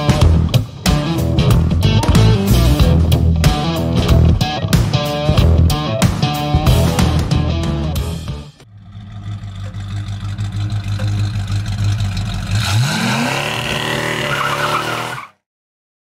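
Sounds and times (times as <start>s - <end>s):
car engine idling and revving: 6.6s - 15.3s.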